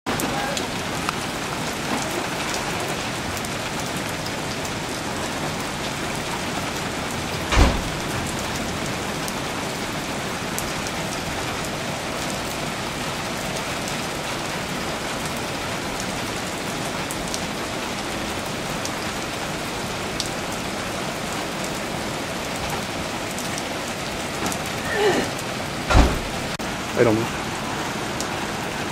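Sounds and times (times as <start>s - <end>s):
raindrop ticks: 0.1s - 9.8s
heavy rain pattering: 0.1s - 28.9s
loud thump: 7.5s - 8.2s, 25.9s - 26.6s.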